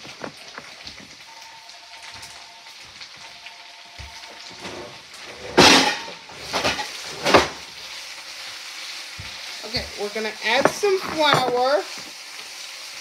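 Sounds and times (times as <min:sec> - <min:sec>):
plastic bag rustling: 0:00.0 - 0:03.3
vegetables frying in a pan: 0:00.0 - 0:13.0.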